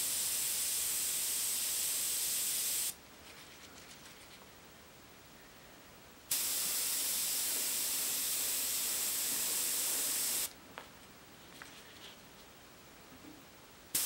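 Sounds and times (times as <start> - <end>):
airbrush hissing: 0.0 - 3.0, 6.3 - 10.5.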